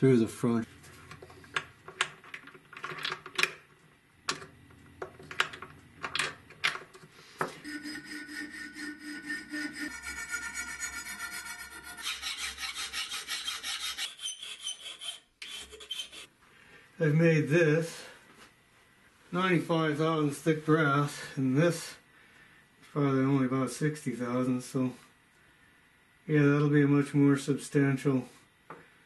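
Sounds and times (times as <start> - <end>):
hand file on brass plate: 7.5 - 16.3.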